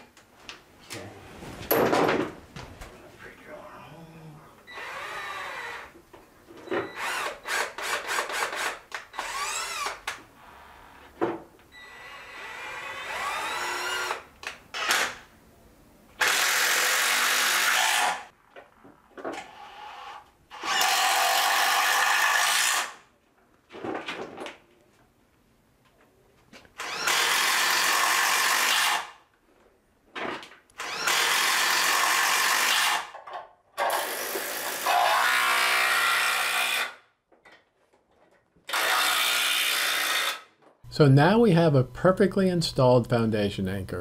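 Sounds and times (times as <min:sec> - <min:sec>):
cordless drill running: 0:04.7 - 0:05.9, 0:06.9 - 0:10.1, 0:11.8 - 0:14.2, 0:16.2 - 0:18.2, 0:20.5 - 0:23.0, 0:26.8 - 0:29.1, 0:30.8 - 0:33.1, 0:38.7 - 0:40.5.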